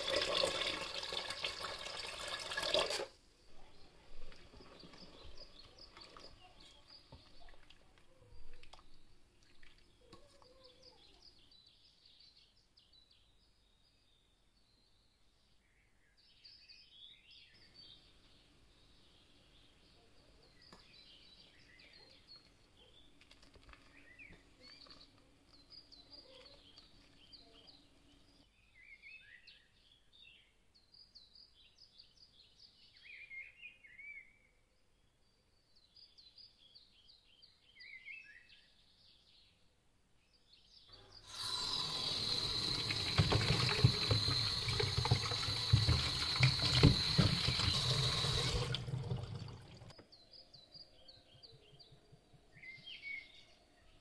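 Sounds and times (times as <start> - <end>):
faint bird chirping: 3.4 - 48.6, 49.2 - 54.0
tap running into metal sink: 41.3 - 49.9.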